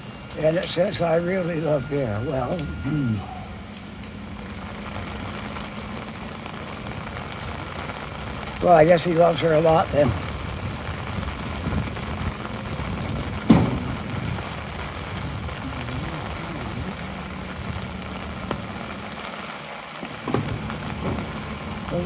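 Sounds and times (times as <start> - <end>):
garbage truck engine running: 0.0 - 22.0
rain pattering on umbrella: 0.0 - 22.0.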